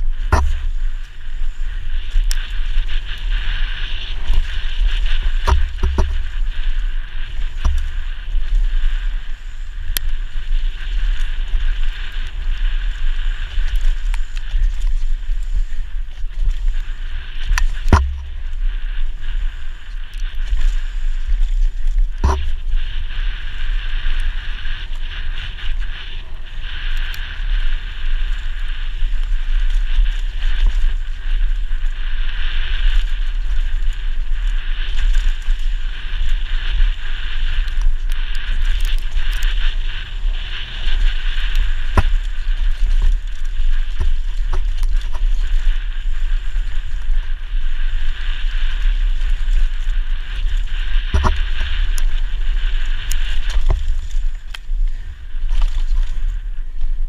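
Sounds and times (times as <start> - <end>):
wind rushing on microphone: 0.0 - 57.0
bike knocking over bumps: 0.2 - 1.0, 5.2 - 6.8
tyres on dirt: 0.2 - 1.2, 4.0 - 8.2, 17.4 - 23.1, 38.4 - 45.8.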